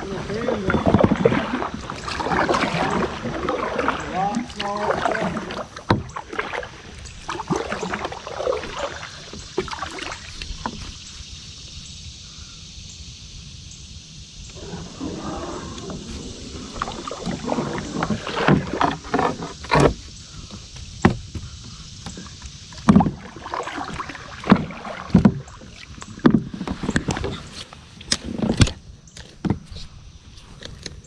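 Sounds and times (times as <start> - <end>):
knocks on plastic kayak hull: 20.7 - 21.5.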